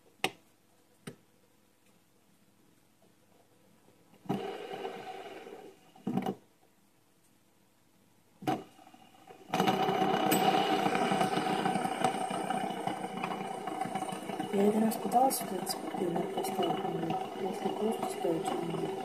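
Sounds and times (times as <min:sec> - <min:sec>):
fidget spinner whirring: 0:09.2 - 0:19.0.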